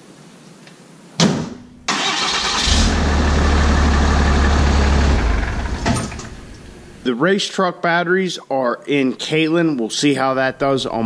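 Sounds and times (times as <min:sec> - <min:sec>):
diesel engine cranking and idling: 0:01.9 - 0:07.0.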